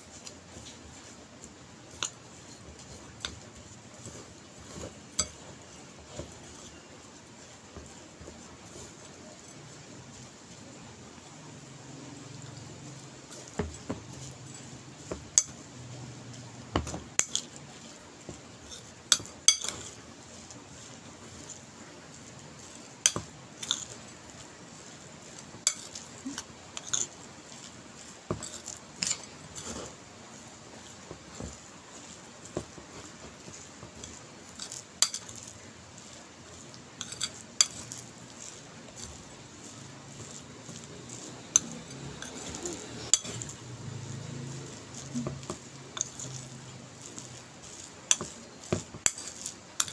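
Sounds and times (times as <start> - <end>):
spoon scraping ceramic bowl: 1.9 - 7.1, 18.6 - 21.7, 22.6 - 24.0, 25.2 - 49.9.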